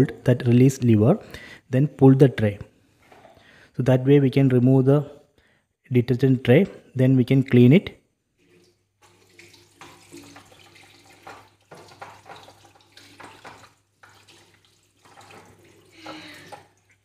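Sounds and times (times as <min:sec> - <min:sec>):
tap water splashing on plastic: 0:09.0 - 0:17.0.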